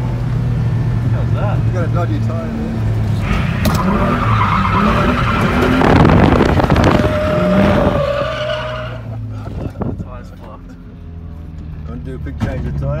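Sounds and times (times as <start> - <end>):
car engine running hard: 0.0 - 13.0
tyres squealing: 3.2 - 9.2.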